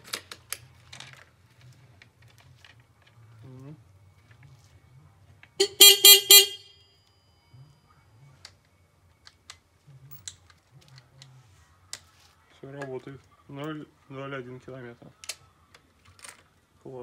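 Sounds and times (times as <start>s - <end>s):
motorcycle horn beeping: 5.6s - 6.8s.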